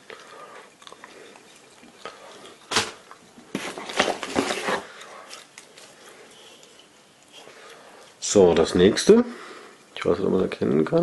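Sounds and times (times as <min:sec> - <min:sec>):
cardboard rustling: 0:02.7 - 0:06.0.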